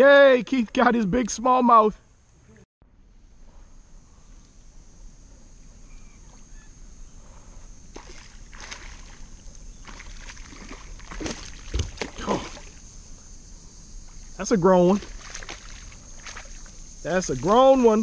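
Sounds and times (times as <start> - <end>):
fish splashing at water surface: 7.9 - 12.8, 14.9 - 16.7.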